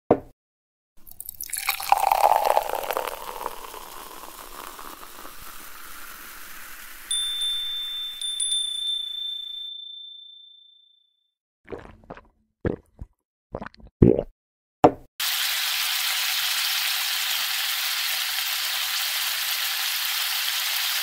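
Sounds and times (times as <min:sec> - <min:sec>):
beer pouring into a glass: 0:01.0 - 0:08.1
high chime ringing: 0:07.1 - 0:10.9.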